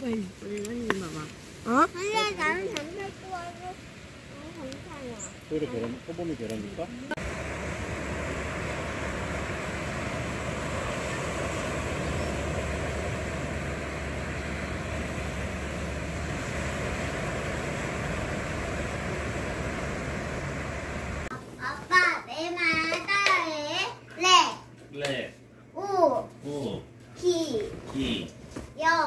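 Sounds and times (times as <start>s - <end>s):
waves washing onto beach: 0.9s - 21.3s
wind rumble on microphone: 7.0s - 21.3s.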